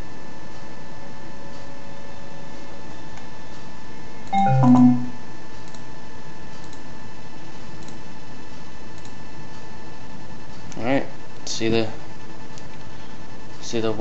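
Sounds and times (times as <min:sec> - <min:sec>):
electronic chime: 0:04.4 - 0:05.2.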